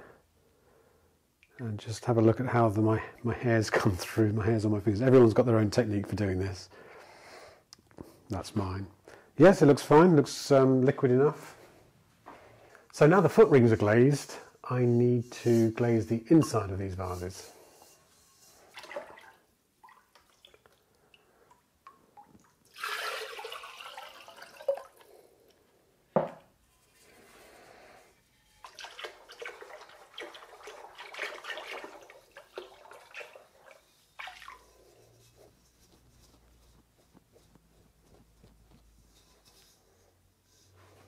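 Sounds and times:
glaze pouring and splashing: 0:15.3 - 0:25.4, 0:26.8 - 0:36.8.

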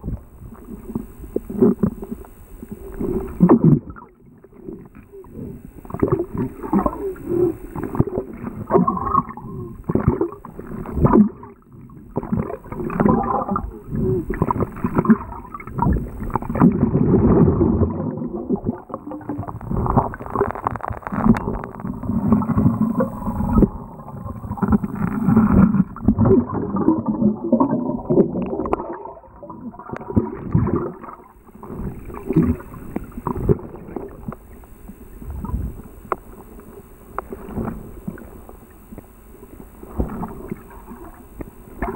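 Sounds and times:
water swirling underwater: 0:00.0 - 0:41.9
underwater knocks and thumps: 0:12.1 - 0:28.9.

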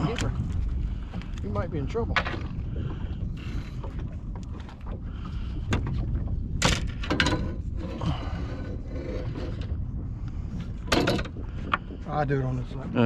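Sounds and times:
wind rumbling on microphone: 0:00.0 - 0:13.0
clicks and scrapes handling fish: 0:03.3 - 0:12.1.

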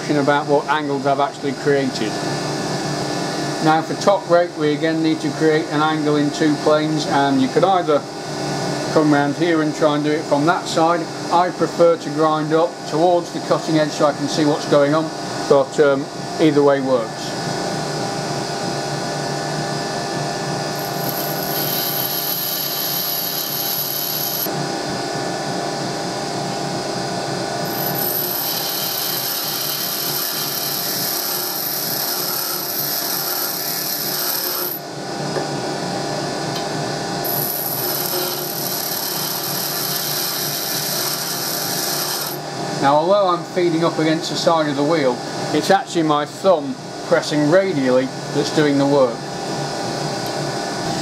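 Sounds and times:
tool grinding hiss: 0:20.7 - 0:24.5, 0:27.6 - 0:34.8, 0:37.2 - 0:42.4
bench grinder motor hum: 0:20.7 - 0:24.6, 0:27.6 - 0:34.8, 0:37.2 - 0:42.4.

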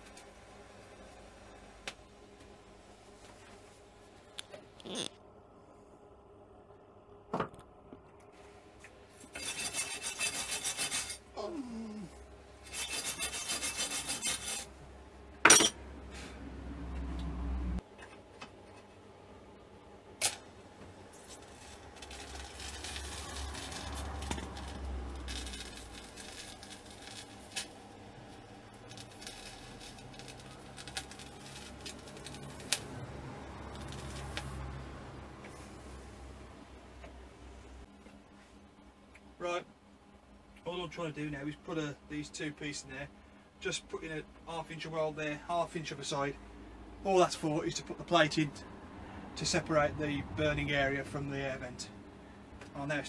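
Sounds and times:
welding arc hissing: 0:21.1 - 0:34.7.

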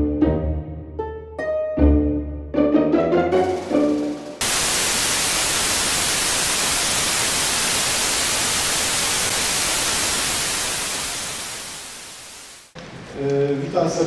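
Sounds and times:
television static hiss: 0:04.4 - 0:12.8.

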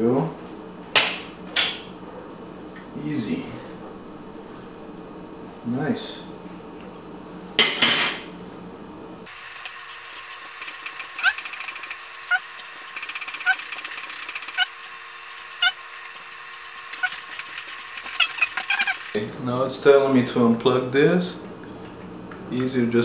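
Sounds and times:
screwdriver squeaking on screws: 0:10.8 - 0:12.5, 0:13.1 - 0:14.8, 0:17.0 - 0:17.3, 0:18.0 - 0:19.1.

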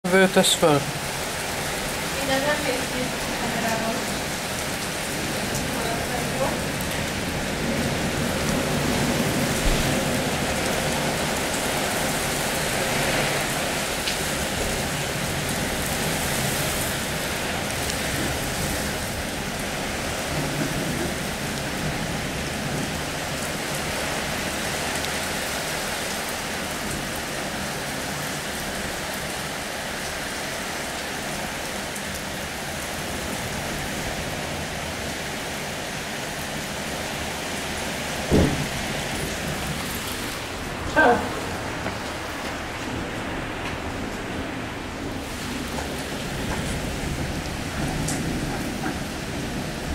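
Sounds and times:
rain on tiled roofs: 0:00.0 - 0:49.9.

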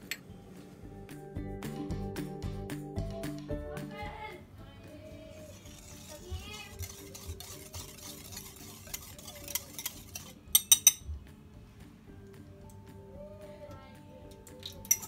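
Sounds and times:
whisk ticking against glass bowl: 0:05.5 - 0:11.1.

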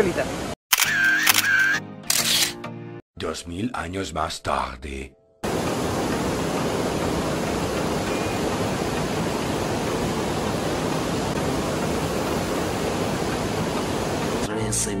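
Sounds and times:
small waterfall rushing over stones: 0:05.4 - 0:14.5.

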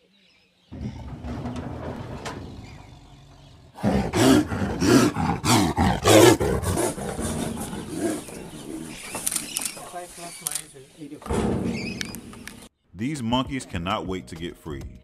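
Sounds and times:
tiger snarling and roaring: 0:00.7 - 0:09.8.

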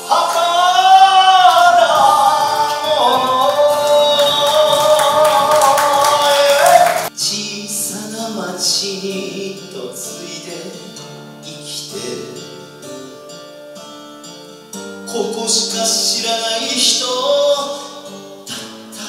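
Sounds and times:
instrumental song intro: 0:00.0 - 0:08.1
backing track music: 0:00.0 - 0:08.2
man singing long note: 0:00.0 - 0:10.8.

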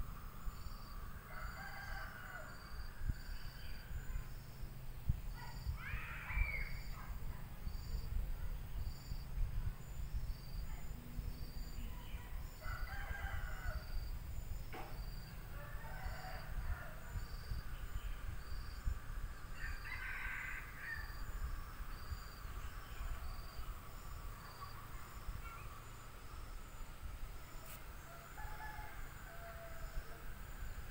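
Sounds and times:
crickets chirping: 0:00.0 - 0:30.9
distant roosters crowing: 0:00.8 - 0:03.4, 0:12.5 - 0:14.2, 0:14.8 - 0:17.6, 0:18.9 - 0:26.0, 0:27.5 - 0:30.9.

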